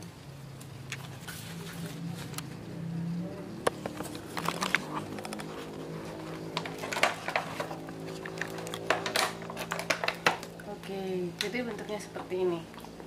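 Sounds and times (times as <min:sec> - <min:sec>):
plastic container crackling: 0:03.7 - 0:10.6.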